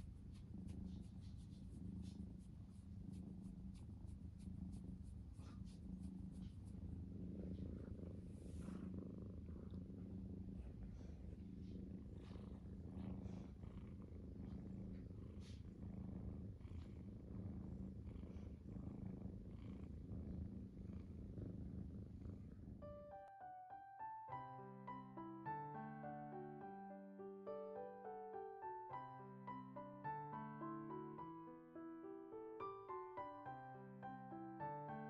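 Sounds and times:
cat purring: 0.0s - 35.0s
piano music: 22.8s - 35.0s.

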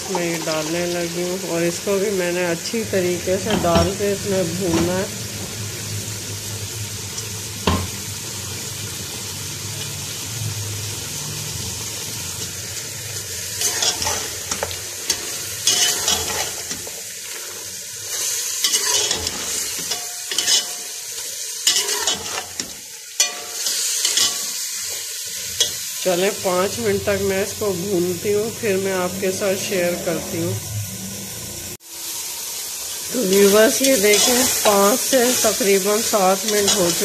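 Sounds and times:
meat sizzling in oil: 0.0s - 37.0s
metal spoon scraping pot: 13.6s - 16.8s, 18.1s - 20.9s, 21.6s - 24.5s, 33.3s - 34.8s.

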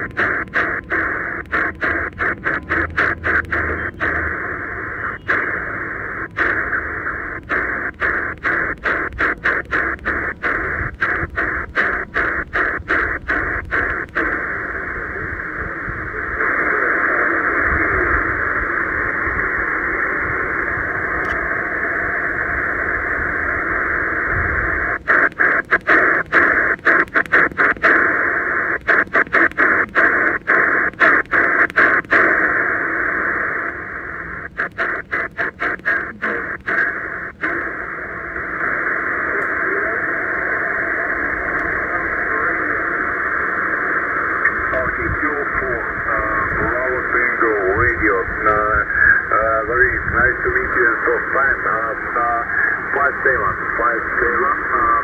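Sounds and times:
radio speaker hissing: 0.0s - 55.0s.

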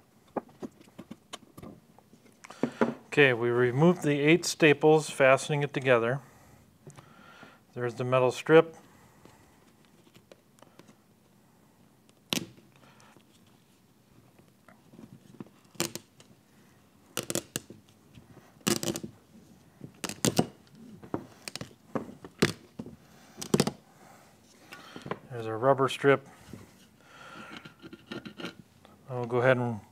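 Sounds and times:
rubber strip clicking and knocking: 17.2s - 17.7s, 18.6s - 19.1s, 20.0s - 20.6s, 23.4s - 23.8s.

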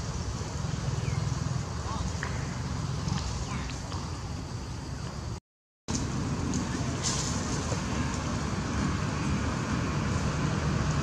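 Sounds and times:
low rumbling outdoor background: 0.0s - 11.0s.

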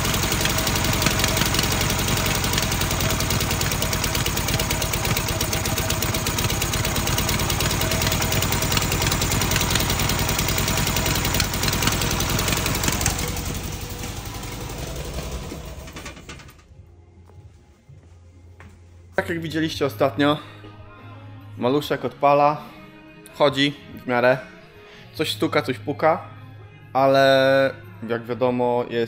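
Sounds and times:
engine knocking: 0.0s - 16.6s
two-cylinder engine running: 0.0s - 16.7s.

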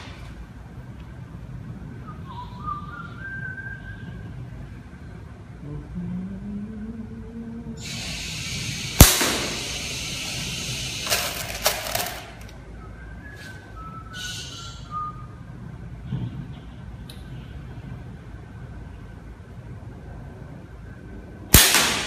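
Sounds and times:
slingshot crack: 9.0s - 9.8s, 21.6s - 22.0s.

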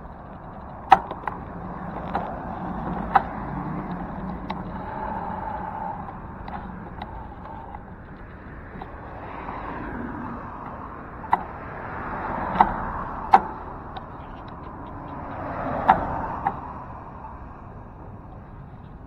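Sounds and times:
cars passing by: 0.0s - 19.0s
sharp clicks or knocks: 0.4s - 5.3s, 10.6s - 16.7s.

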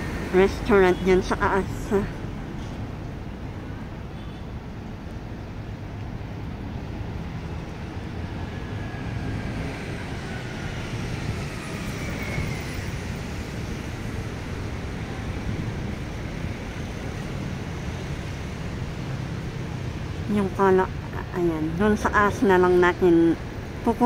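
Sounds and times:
passing cars hum: 0.0s - 24.0s
faint whine gliding in pitch: 7.6s - 17.8s.

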